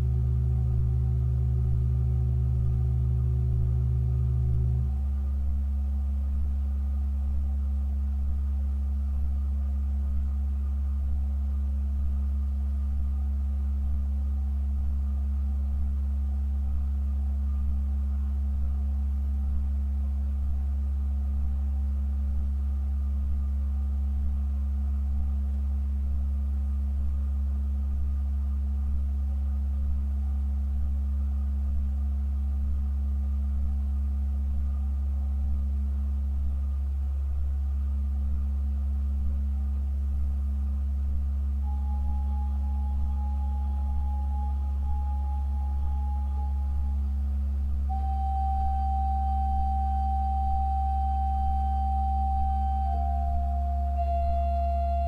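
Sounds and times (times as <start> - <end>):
pipe organ low note: 0.0 - 5.2, 41.6 - 47.2, 47.9 - 55.0.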